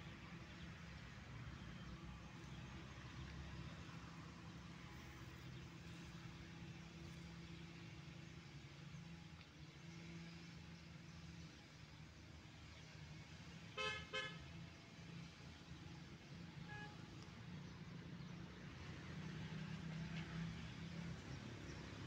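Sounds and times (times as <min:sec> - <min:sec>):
distant traffic hum: 0:00.0 - 0:22.0
vehicle horn tooting: 0:13.8 - 0:14.4, 0:16.7 - 0:17.1.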